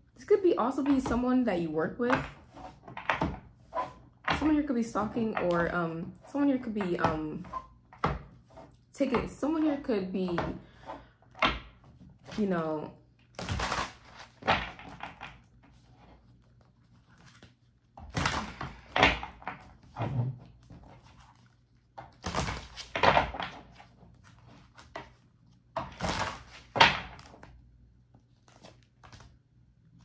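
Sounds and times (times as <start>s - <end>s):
cards being shuffled: 13.4s - 18.5s, 28.1s - 29.4s.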